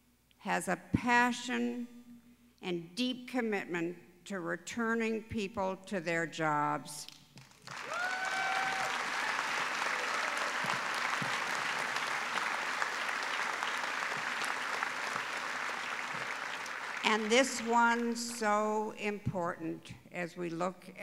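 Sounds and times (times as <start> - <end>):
audience applauding: 7.5 - 17.7.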